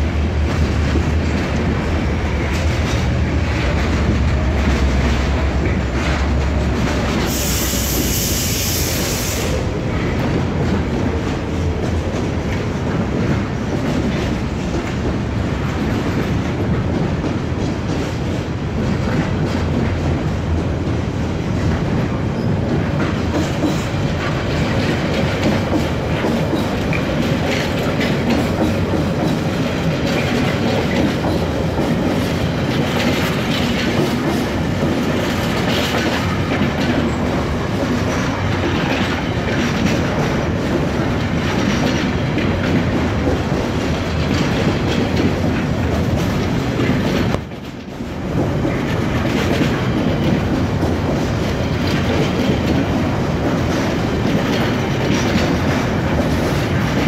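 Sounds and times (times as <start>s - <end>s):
freight train wheels clattering: 0.0s - 57.0s.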